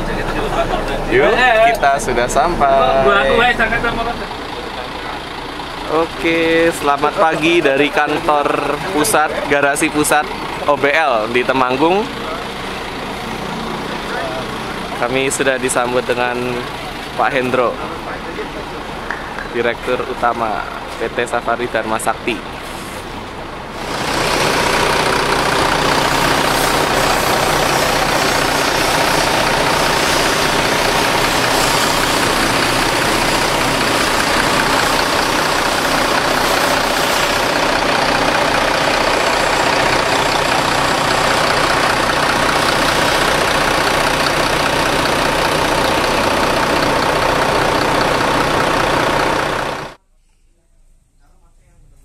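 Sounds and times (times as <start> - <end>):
diesel bus engine idling: 0.0 - 50.0.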